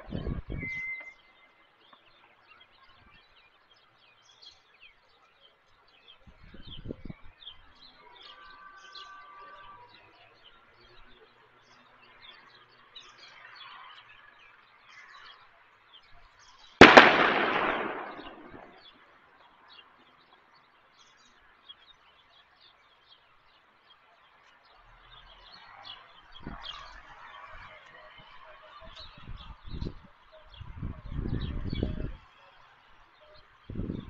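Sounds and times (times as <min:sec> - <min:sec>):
birds chirping: 0:00.0 - 0:34.0
sharp echoing bang: 0:16.8 - 0:18.9.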